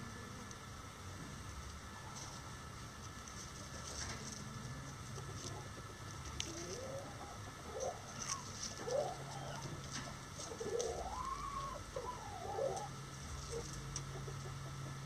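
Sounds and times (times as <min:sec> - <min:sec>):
chickens making soft calls: 0:03.4 - 0:15.0.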